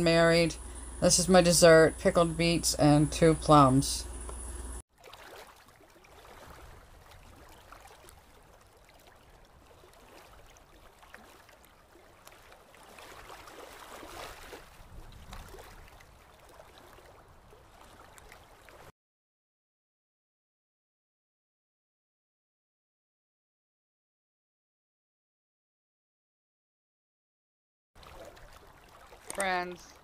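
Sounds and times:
small waves washing up a beach: 4.9s - 18.9s.

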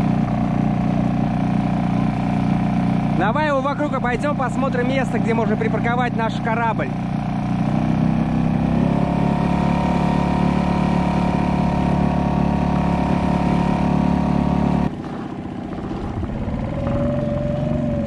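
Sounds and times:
small outboard motor running: 0.0s - 18.0s.

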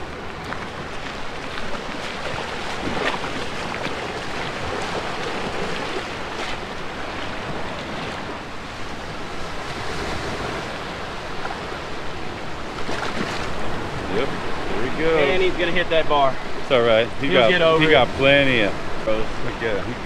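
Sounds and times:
splashing wading in shallows: 0.0s - 14.7s
small waves breaking on beach: 0.0s - 20.0s.

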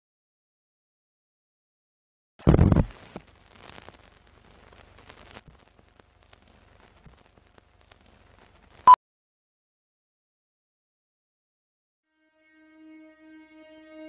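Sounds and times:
film crackle with clicks and pops: 2.4s - 9.0s.

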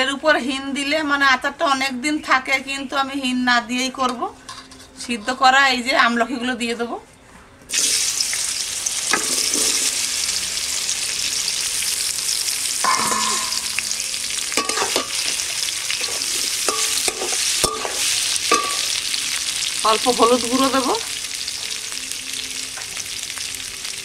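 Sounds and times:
food sizzling in hot oil: 7.7s - 24.0s
metal spatula scraping a pan: 9.1s - 10.0s, 12.8s - 19.1s.

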